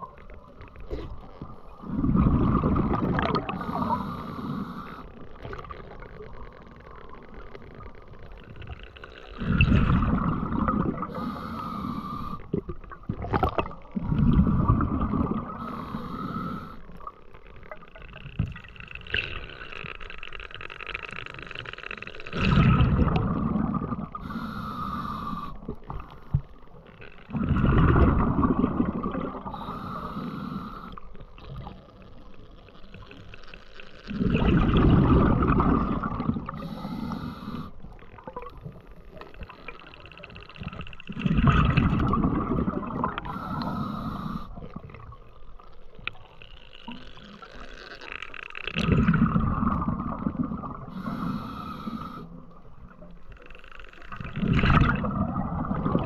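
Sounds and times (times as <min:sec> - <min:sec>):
exhaled bubbles gushing: 0:01.8 - 0:03.8, 0:09.4 - 0:11.2, 0:12.5 - 0:15.6, 0:22.3 - 0:24.2, 0:27.3 - 0:29.6, 0:34.1 - 0:36.6, 0:40.6 - 0:43.4, 0:48.7 - 0:51.1, 0:54.2 - 0:56.0
regulator hissing inhale: 0:03.5 - 0:05.2, 0:11.1 - 0:12.6, 0:15.5 - 0:17.1, 0:24.1 - 0:26.5, 0:29.4 - 0:31.3, 0:36.4 - 0:38.1, 0:43.2 - 0:44.8, 0:50.8 - 0:52.6.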